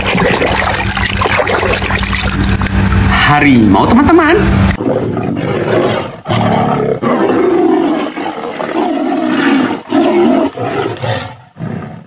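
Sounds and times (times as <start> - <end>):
tigers roaring and growling: 4.8 - 12.0.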